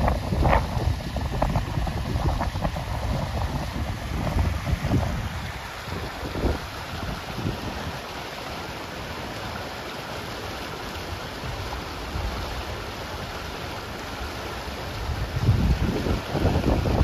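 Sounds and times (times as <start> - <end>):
creek rushing over a drop: 0.0 - 17.0.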